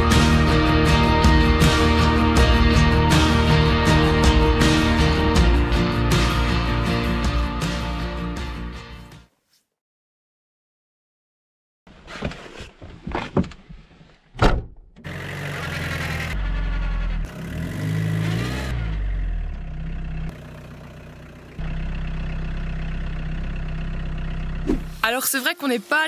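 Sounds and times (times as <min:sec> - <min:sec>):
motorhome engine pulling away: 0:15.0 - 0:25.0.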